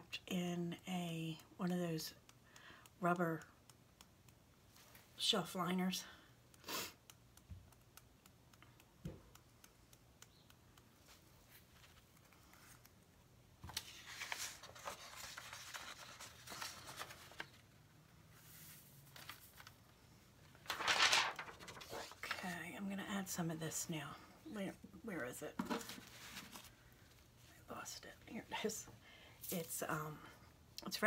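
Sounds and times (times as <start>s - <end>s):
paper sheet rustling: 13.6s - 17.8s, 18.4s - 19.9s, 20.5s - 22.5s, 25.7s - 26.8s
glitter rustling on paper: 13.7s - 22.5s, 25.7s - 26.8s.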